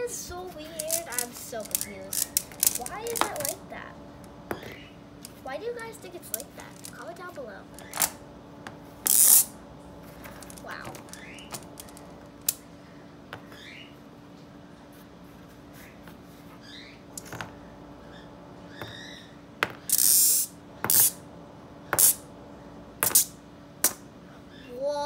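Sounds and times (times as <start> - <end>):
magnet balls clicking together: 0.7 - 3.6, 6.0 - 8.2, 9.0 - 9.5, 10.4 - 12.6, 19.9 - 21.2.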